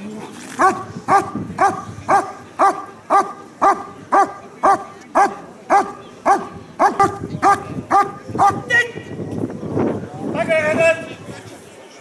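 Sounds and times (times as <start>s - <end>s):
dog barking: 0.6s - 8.6s.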